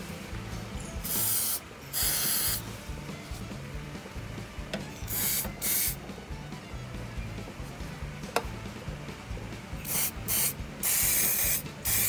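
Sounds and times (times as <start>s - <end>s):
aerosol spray hissing bursts: 1.0s - 2.7s, 5.1s - 6.0s, 9.8s - 12.0s.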